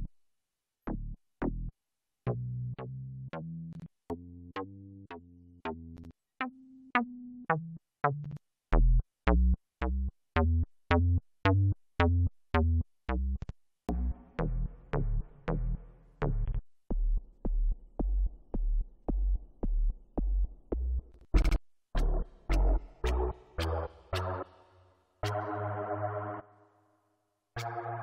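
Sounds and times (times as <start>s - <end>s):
synthesizer bass notes: 20.3s - 24.5s, 25.2s - 26.4s.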